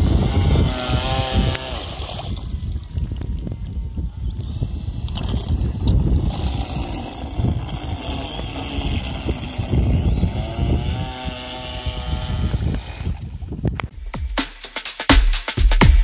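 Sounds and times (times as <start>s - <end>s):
toy boat motor whining: 0.0s - 2.6s, 4.3s - 13.4s
wind buffeting microphone: 0.0s - 13.9s.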